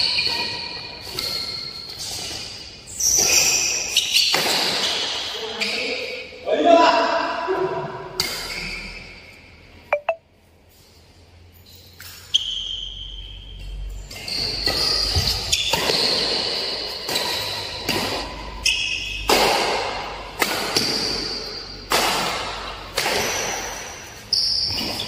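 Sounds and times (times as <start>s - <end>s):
shoes squeaking on court: 0.0s - 6.2s, 13.6s - 17.9s, 23.2s - 25.0s
rackets hitting shuttlecock: 14.4s - 25.0s.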